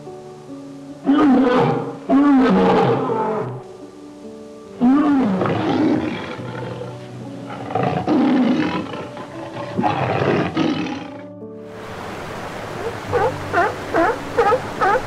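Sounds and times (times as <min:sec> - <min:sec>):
background music with held notes: 0:00.0 - 0:15.0
large animal calling loudly: 0:01.0 - 0:03.6, 0:12.8 - 0:15.0.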